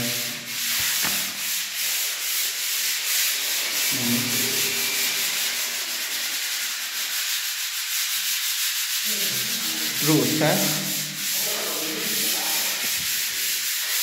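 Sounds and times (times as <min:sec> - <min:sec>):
sandpaper rasping on wall: 0:00.0 - 0:14.0.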